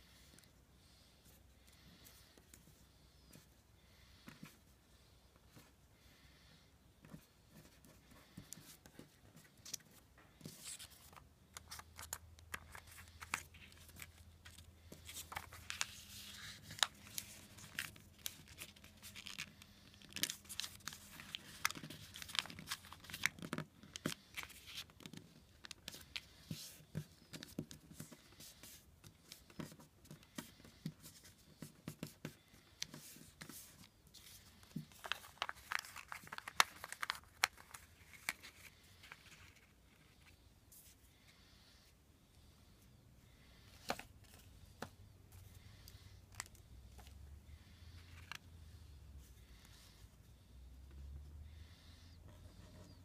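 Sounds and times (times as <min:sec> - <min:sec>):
paper rustling and crinkling: 0:09.0 - 0:28.2, 0:32.8 - 0:40.3
sharp paper crackles: 0:34.9 - 0:38.6.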